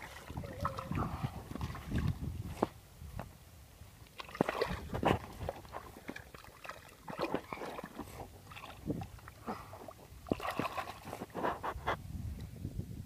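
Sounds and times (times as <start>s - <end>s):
water sloshing: 0.0s - 2.8s, 4.0s - 11.7s
hands digging in wet mud: 4.1s - 11.8s.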